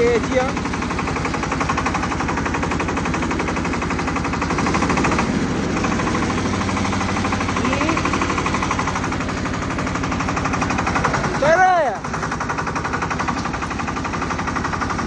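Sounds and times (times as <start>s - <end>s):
diesel engine chugging: 0.0s - 15.0s.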